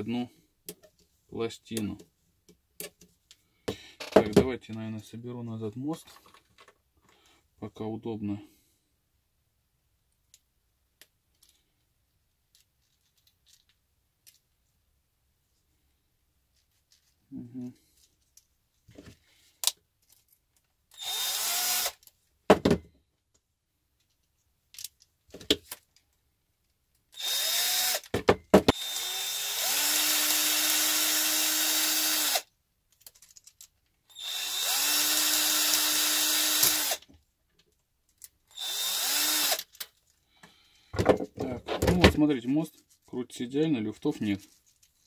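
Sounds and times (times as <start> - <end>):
cordless drill motor spinning: 20.9 - 22.0, 27.2 - 28.0, 28.7 - 32.4, 34.1 - 37.1, 38.5 - 39.7
clicks and knocks from parts: 32.9 - 33.9.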